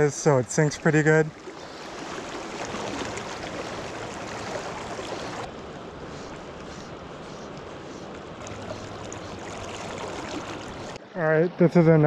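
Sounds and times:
river current rushing: 0:00.0 - 0:11.0.

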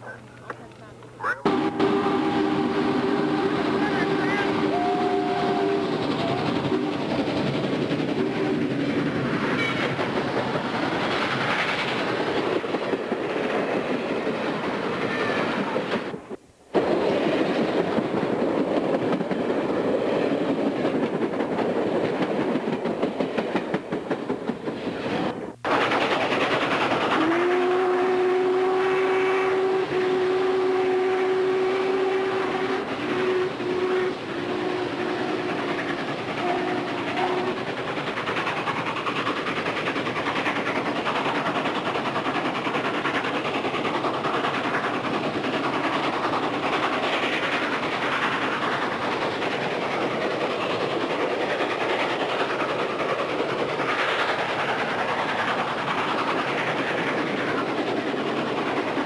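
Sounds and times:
steam train rumbling: 0:00.0 - 0:59.0
long whistle blast: 0:01.5 - 0:07.0, 0:27.2 - 0:35.6
train chime whistle: 0:01.5 - 0:07.0.

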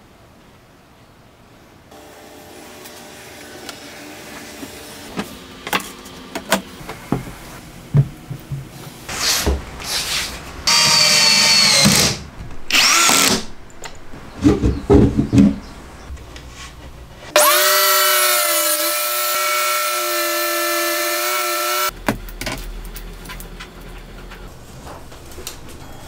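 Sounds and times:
cordless drill driving screws: 0:10.7 - 0:13.5.

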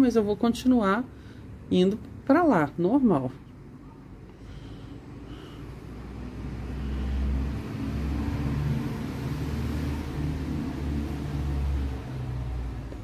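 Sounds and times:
vehicle engine rumble: 0:04.6 - 0:13.0.

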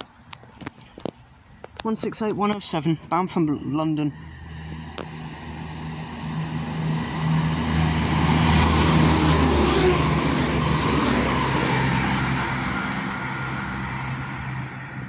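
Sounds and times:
train diesel engine drone: 0:00.0 - 0:15.0
train wheels and air rushing: 0:04.1 - 0:15.0.

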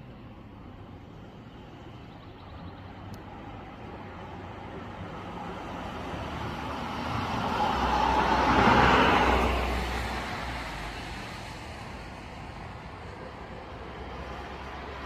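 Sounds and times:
vehicle passing by: 0:04.4 - 0:12.6.

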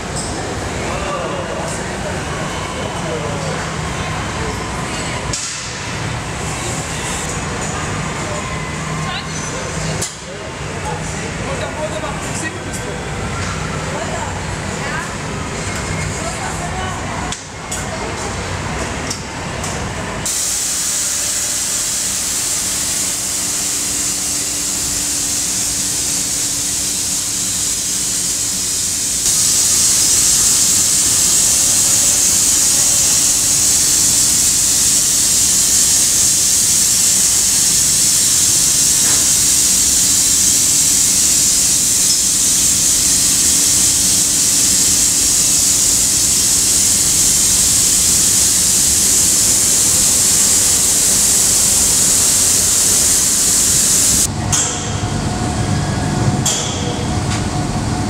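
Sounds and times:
faint machine hum: 0:00.0 - 0:58.0
paint sprayers hissing: 0:20.3 - 0:54.3.

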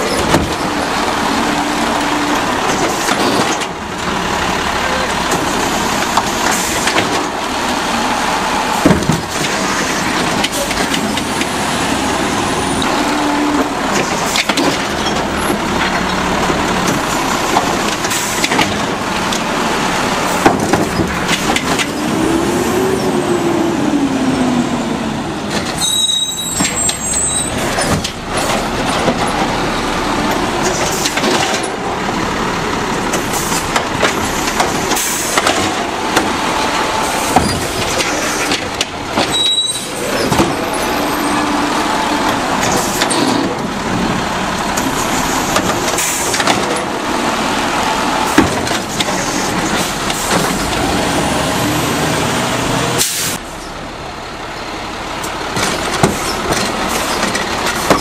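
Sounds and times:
carts banging against hopper: 0:00.0 - 0:04.0, 0:05.0 - 0:07.4, 0:08.7 - 0:22.2, 0:25.5 - 0:32.0, 0:33.0 - 0:44.1, 0:44.7 - 0:47.0, 0:48.2 - 0:51.3, 0:55.5 - 0:58.0
truck engine running: 0:00.0 - 0:58.0.

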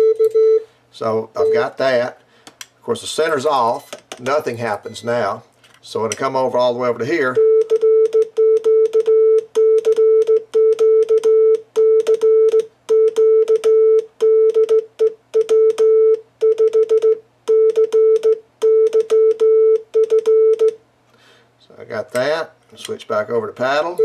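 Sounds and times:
morse code beeps: 0:00.0 - 0:00.7, 0:01.4 - 0:01.8, 0:07.3 - 0:20.8.

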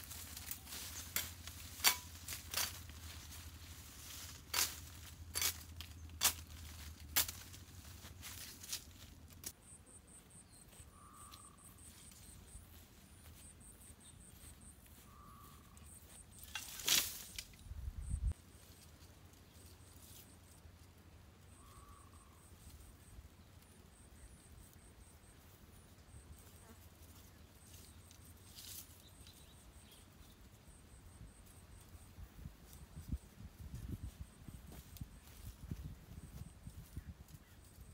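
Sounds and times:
dry branches crackling: 0:00.0 - 0:09.5, 0:16.3 - 0:17.6
insects chirping faintly: 0:00.0 - 0:37.9.

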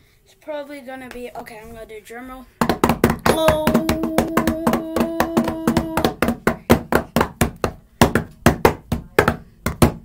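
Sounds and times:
hands slapping a hard surface: 0:02.6 - 0:10.0.

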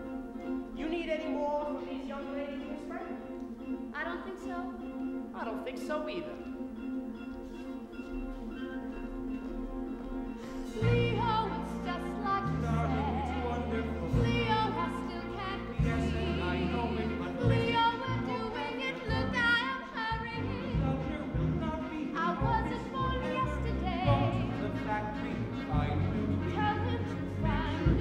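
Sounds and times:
instrumental accompaniment: 0:00.0 - 0:28.0
man singing with vibrato: 0:00.7 - 0:03.4, 0:10.6 - 0:28.0.

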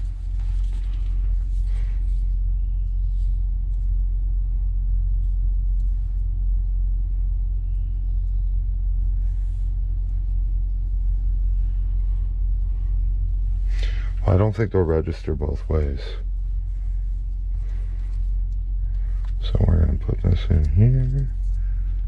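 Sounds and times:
cables clicking and rustling: 0:16.2 - 0:22.0.

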